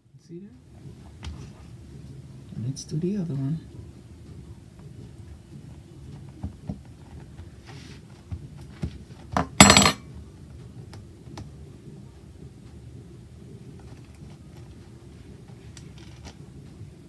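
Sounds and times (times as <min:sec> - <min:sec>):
fork clattering down: 0:09.4 - 0:10.0.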